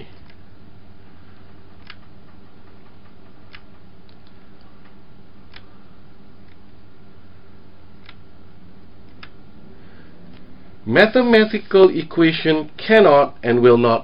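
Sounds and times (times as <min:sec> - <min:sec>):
steady low hum: 0:00.0 - 0:14.0
faint clicks: 0:01.5 - 0:05.7.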